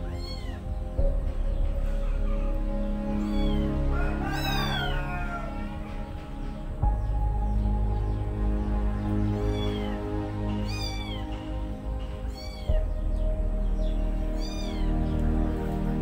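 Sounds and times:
background music held notes: 0.0 - 16.0.

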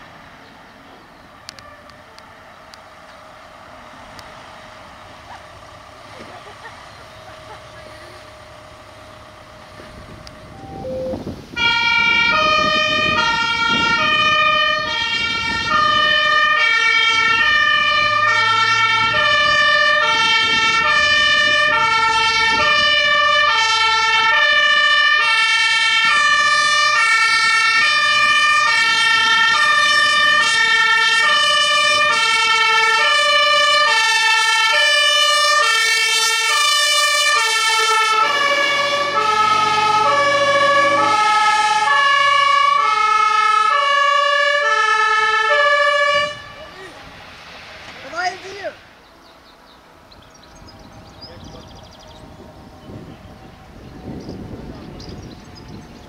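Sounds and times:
two-tone fire engine sirens: 1.3 - 49.0, 49.9 - 56.0.

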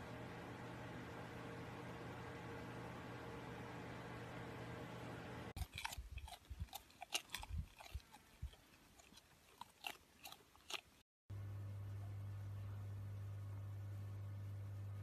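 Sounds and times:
steady low hum: 0.0 - 9.0, 11.3 - 15.0
alpaca chewing: 5.6 - 11.0.

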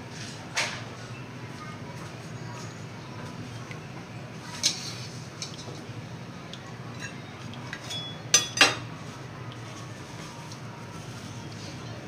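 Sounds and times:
cutlery clinking against plate: 7.0 - 8.9.

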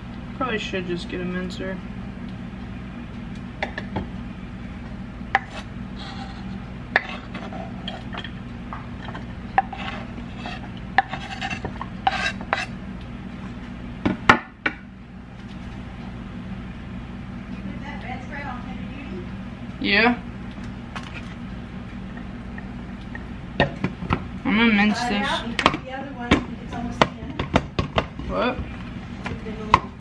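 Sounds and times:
steady low hum: 0.0 - 30.0
knife scraping board: 5.4 - 8.1, 9.6 - 12.7.

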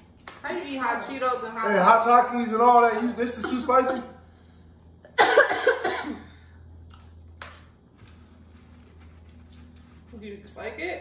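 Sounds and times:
person coughing harshly: 5.1 - 6.4.

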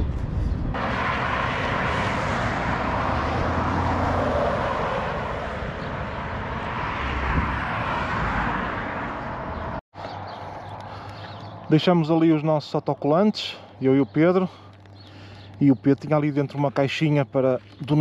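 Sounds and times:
highway traffic rushing: 0.0 - 18.0.

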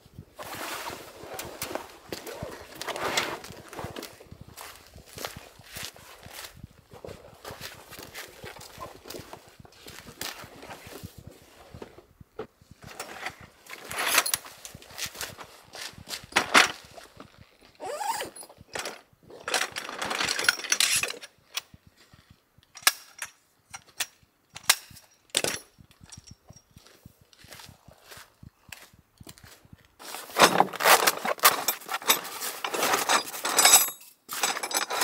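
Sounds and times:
nylon rustling: 0.4 - 11.9, 30.0 - 33.2.

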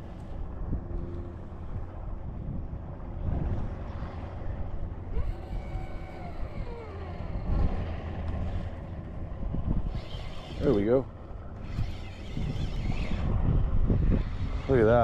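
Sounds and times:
wind rumbling on microphone: 0.0 - 15.0
faint wavering tones: 5.0 - 8.6.

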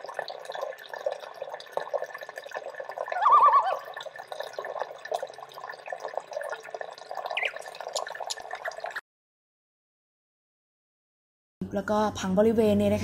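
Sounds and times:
water trickling and dripping: 0.0 - 9.0
short warbling tone: 3.2 - 3.9.

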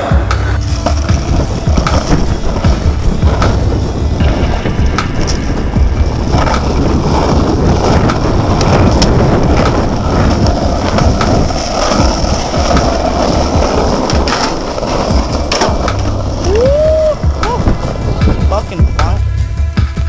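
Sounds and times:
skateboard clacks: 0.0 - 20.0
skateboard wheels rumbling on asphalt: 0.0 - 20.0.

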